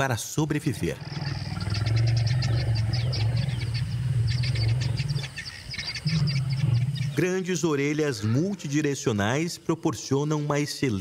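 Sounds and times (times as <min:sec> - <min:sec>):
large animal growling: 0:00.7 - 0:07.3.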